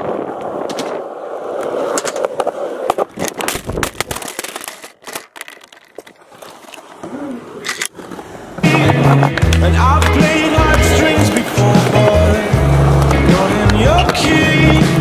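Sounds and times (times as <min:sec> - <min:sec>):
camera tumbling across ground: 0:00.0 - 0:07.0
skateboard wheels rolling on concrete: 0:00.0 - 0:15.0.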